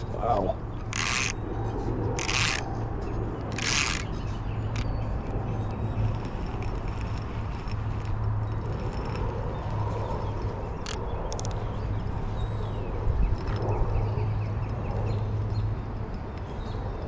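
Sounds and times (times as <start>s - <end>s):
fishing line rasping off reel: 0.8s - 12.4s.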